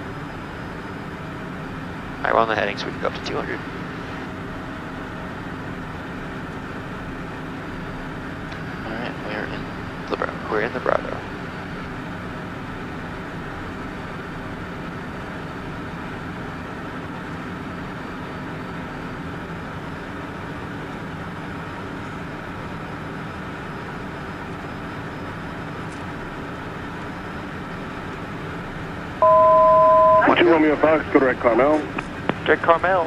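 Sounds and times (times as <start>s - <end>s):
jet engines in cabin: 0.0s - 33.0s
faint steady tones: 16.6s - 31.8s.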